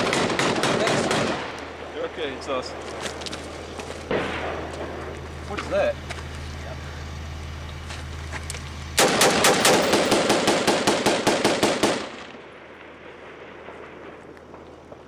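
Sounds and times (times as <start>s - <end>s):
automatic gunfire: 0.0s - 1.6s, 9.0s - 14.2s
steady low hum: 0.0s - 15.0s
gunshot echo: 4.1s - 4.9s, 9.0s - 14.3s.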